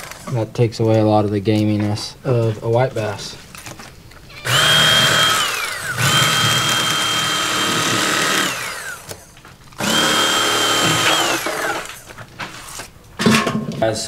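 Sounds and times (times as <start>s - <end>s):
electric knife motor whine: 4.3s - 12.1s.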